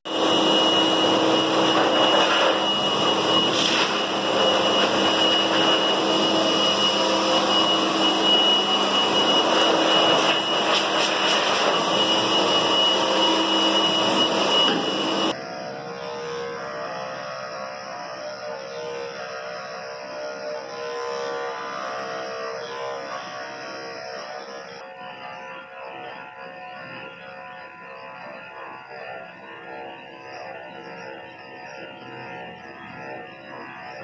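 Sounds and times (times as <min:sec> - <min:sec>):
pet blow dryer running: 0:00.1 - 0:26.2.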